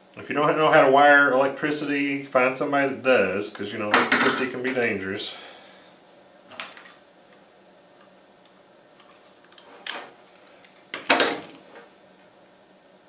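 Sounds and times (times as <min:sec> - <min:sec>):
tools clattering on workbench: 0:06.5 - 0:07.0, 0:11.0 - 0:11.9.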